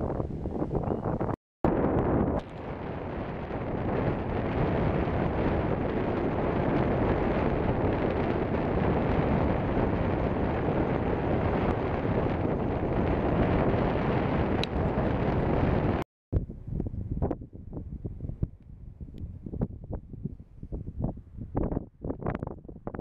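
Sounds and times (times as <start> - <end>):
wind blowing across microphone: 0.0 - 23.0.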